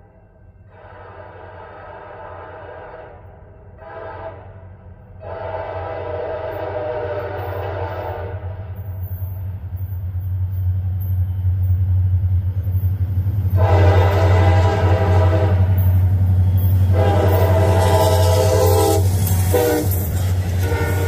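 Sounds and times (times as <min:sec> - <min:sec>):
train air horn blast: 0:00.7 - 0:08.8, 0:13.5 - 0:16.0, 0:16.8 - 0:21.0
diesel locomotive rumble: 0:00.8 - 0:21.0.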